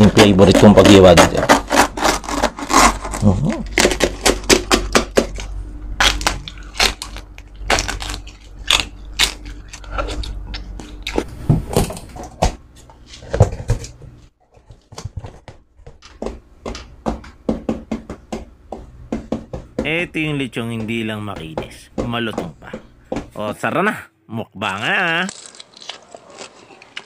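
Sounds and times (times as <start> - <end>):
crunchy bites and chewing: 1.4 - 11.3, 25.2 - 27.0.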